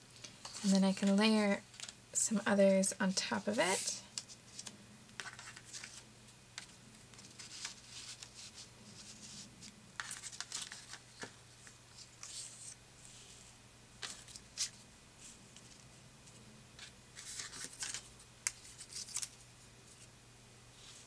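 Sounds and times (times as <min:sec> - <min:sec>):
paper rustling and scraping: 0:00.3 - 0:01.9, 0:03.5 - 0:06.0, 0:06.6 - 0:13.3, 0:14.0 - 0:19.4.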